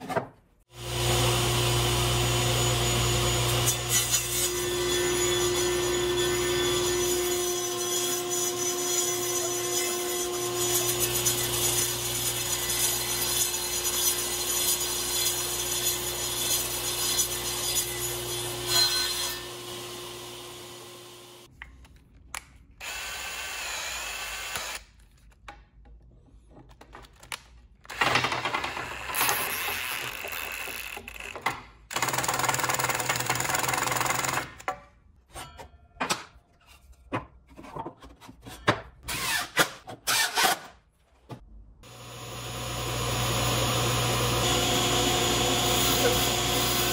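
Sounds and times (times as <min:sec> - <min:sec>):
table saw running: 0:00.8 - 0:07.4, 0:10.3 - 0:21.5, 0:41.8 - 0:46.9
cordless drill driving screws: 0:22.8 - 0:24.8.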